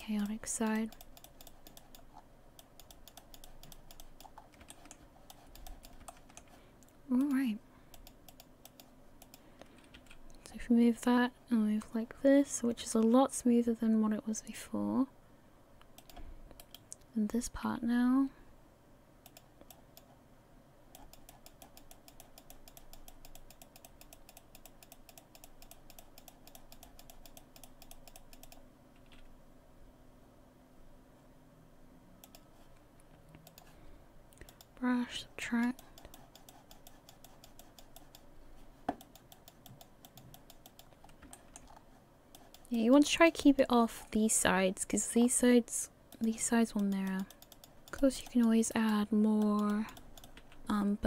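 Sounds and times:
computer mouse clicking: 0.0 - 10.5, 15.8 - 17.1, 19.2 - 20.2, 20.9 - 29.3, 32.2 - 34.8, 35.6 - 38.3, 38.9 - 44.2, 46.1 - 50.7
scroll wheel notches: 0.0 - 10.5, 21.0 - 29.2, 32.2 - 33.8, 35.6 - 38.3, 38.9 - 44.2, 46.1 - 50.6.

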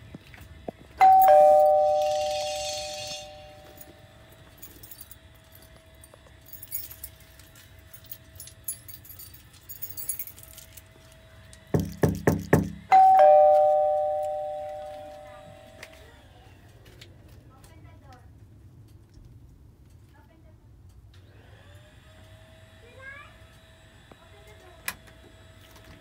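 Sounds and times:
two-note doorbell chime: 1.0 - 3.8, 12.9 - 15.8.

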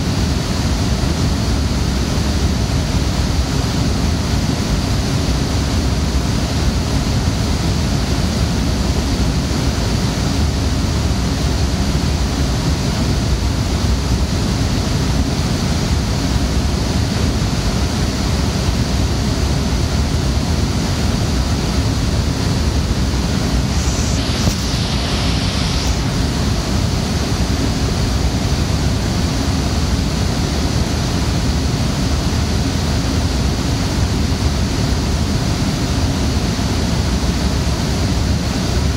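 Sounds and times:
server cooling fans rushing: 0.0 - 38.9
brief hiss: 22.8 - 27.5.

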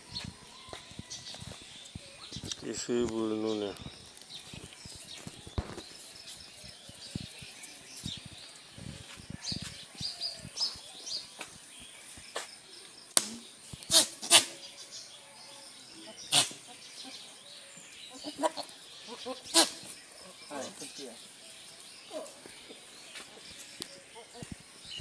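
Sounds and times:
small birds chirping: 0.0 - 25.0
hooves clacking on pavement: 0.2 - 12.5.

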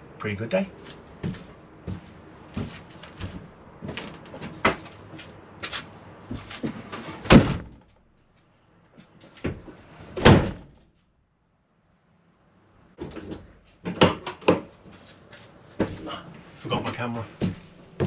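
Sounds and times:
light knocks and bumps: 0.8 - 7.8, 13.0 - 18.0
van doors slamming: 6.6 - 7.9, 9.5 - 10.8.

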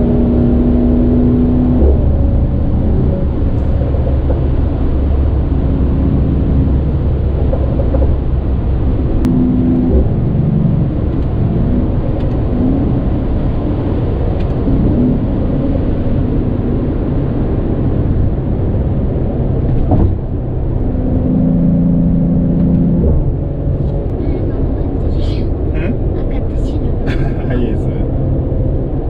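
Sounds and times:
car engine drone: 0.0 - 29.0
road and tyre noise: 0.0 - 29.0.

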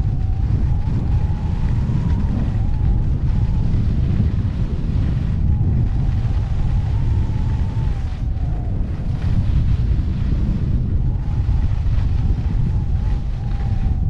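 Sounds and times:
wind buffeting microphone: 0.0 - 14.0
faint wavering whistle: 5.3 - 9.0.

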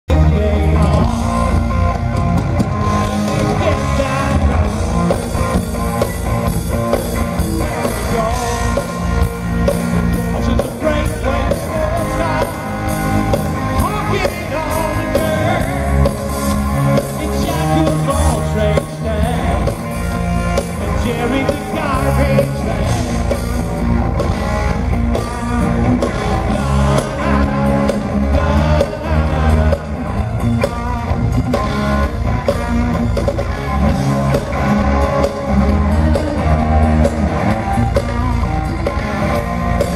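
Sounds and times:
lead singer singing: 0.1 - 1.6, 3.0 - 5.2, 7.4 - 23.5, 25.1 - 31.4
drums with steady beat: 0.1 - 39.9
electric guitars: 0.1 - 39.9
keyboard: 0.1 - 39.9.

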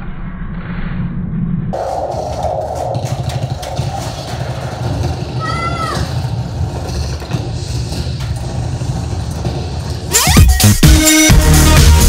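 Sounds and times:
child squealing: 5.4 - 6.2.

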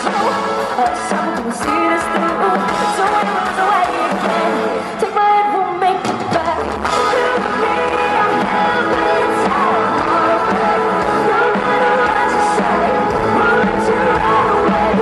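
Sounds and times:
drums: 0.0 - 15.0
electric guitars: 0.0 - 15.0
woman singing: 0.0 - 15.0.

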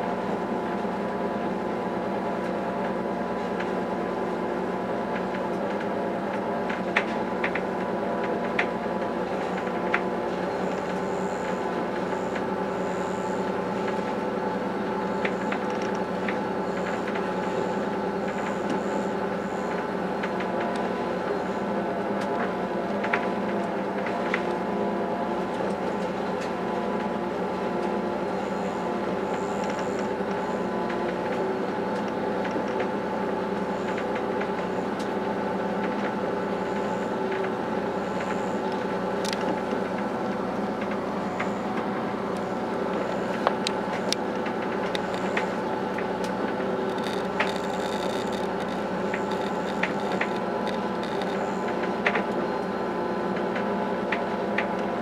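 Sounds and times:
train motors and wheels humming: 0.0 - 55.0
sharp clicks and rattles: 42.4 - 52.2.

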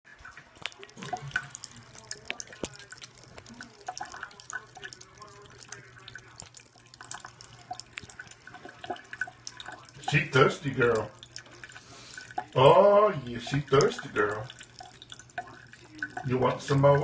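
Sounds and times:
cat lapping water: 0.1 - 17.0
faucet running thin stream: 0.1 - 17.0
small drips and splashes: 0.1 - 17.0.

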